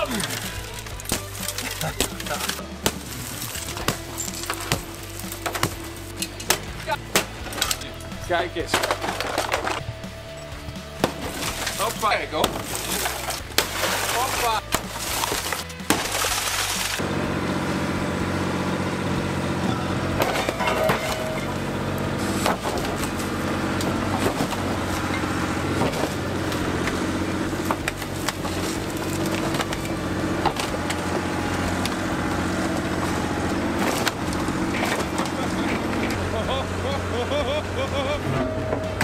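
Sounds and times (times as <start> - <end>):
sledgehammer smashing car window: 0.0 - 7.8, 11.0 - 17.0, 20.2 - 21.6
cracks and crunches of metal and glass: 0.0 - 9.9, 11.0 - 17.0, 20.2 - 21.6, 27.6 - 32.0, 33.0 - 36.2
excavator diesel engine under load: 17.0 - 39.0.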